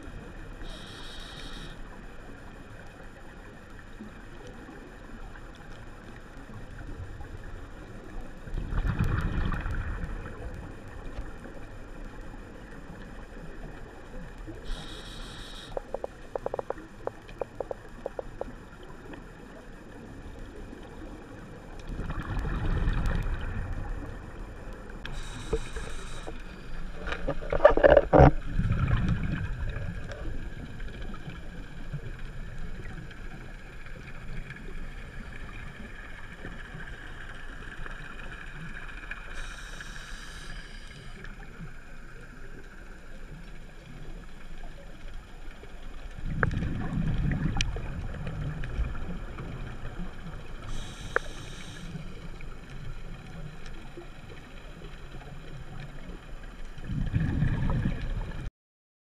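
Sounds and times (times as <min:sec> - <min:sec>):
regulator hissing underwater: 0:00.5 - 0:02.5, 0:14.5 - 0:18.9, 0:24.0 - 0:29.0, 0:38.0 - 0:42.1, 0:49.6 - 0:52.6
exhaled bubbles gurgling: 0:03.9 - 0:58.5.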